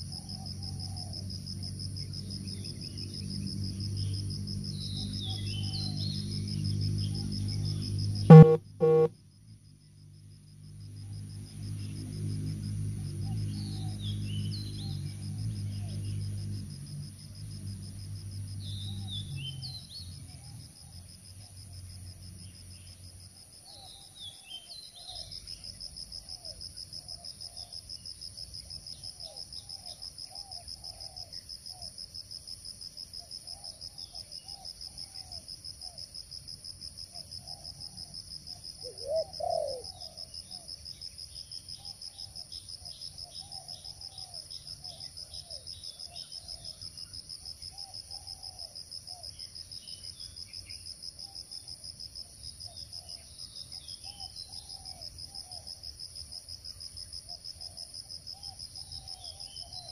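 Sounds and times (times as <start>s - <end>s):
short low two-part call: 8.3s - 9.1s
high-pitched insect chorus: 10.4s - 59.9s
faint low bird calls: 38.8s - 40.2s.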